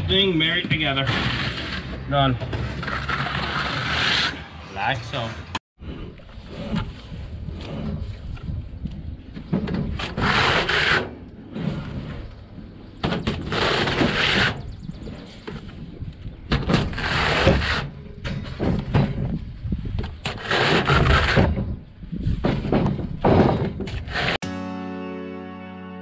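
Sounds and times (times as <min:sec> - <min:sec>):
trowel scraping mortar: 0:00.6 - 0:04.6, 0:16.8 - 0:18.0, 0:20.2 - 0:21.6.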